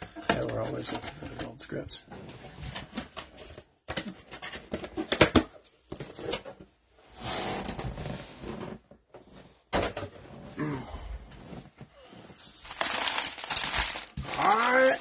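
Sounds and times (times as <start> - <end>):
card packs rustling: 12.2 - 15.0.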